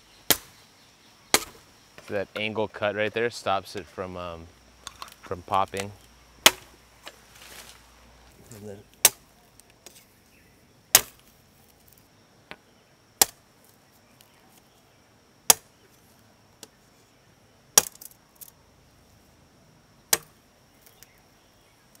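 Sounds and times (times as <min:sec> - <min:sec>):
machete chopping bamboo: 0:00.3 - 0:00.6, 0:01.3 - 0:01.6, 0:05.8 - 0:06.8, 0:09.0 - 0:09.3, 0:10.9 - 0:11.3, 0:13.2 - 0:13.4, 0:15.5 - 0:15.7, 0:17.8 - 0:18.5, 0:20.1 - 0:20.4.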